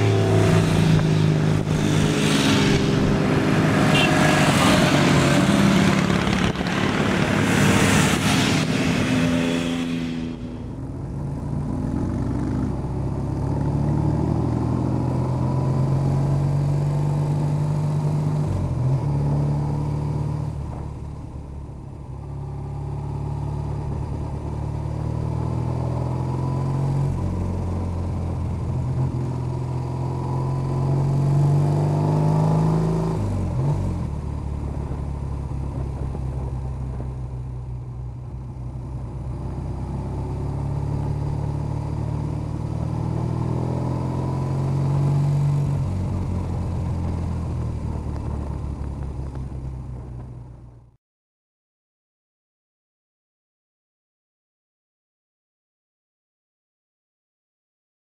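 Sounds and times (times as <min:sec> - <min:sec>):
gear changes: 0:00.0 - 0:10.5
motorcycle engine running: 0:05.5 - 0:07.4.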